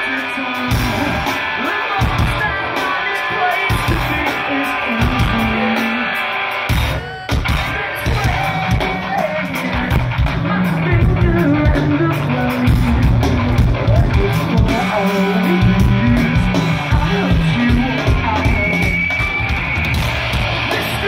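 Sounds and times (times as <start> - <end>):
live rock band playing: 0.0 - 21.0.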